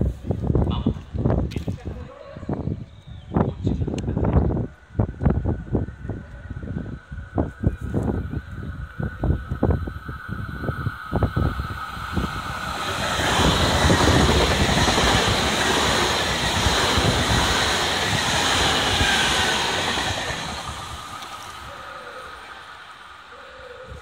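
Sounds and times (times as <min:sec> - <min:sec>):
train rushing past: 0:08.1 - 0:23.4.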